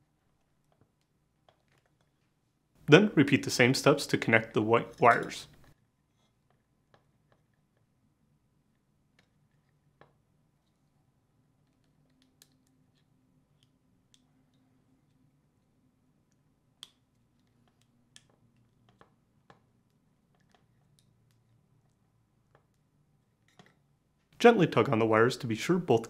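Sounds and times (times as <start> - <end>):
faint room hum: 0.0 - 26.0
small plastic clicks: 11.6 - 23.8.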